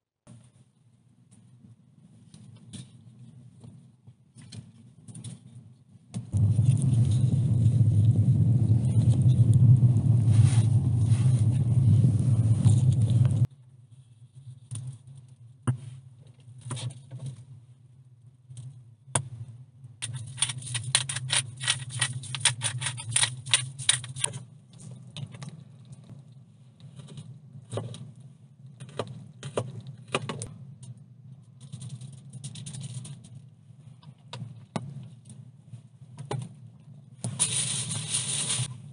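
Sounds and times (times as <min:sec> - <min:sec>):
loud steady rushing noise: 0:06.3 - 0:13.5
aluminium foil rustling: 0:37.3 - 0:38.8
salt shaker rattling: 0:37.4 - 0:38.7.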